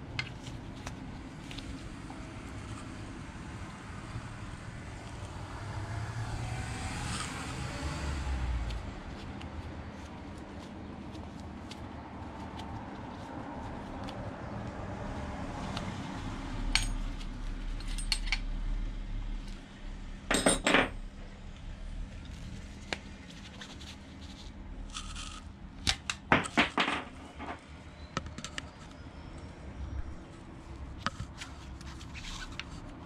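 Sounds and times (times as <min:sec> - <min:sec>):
metal tools clinking: 0:20.3 - 0:21.0.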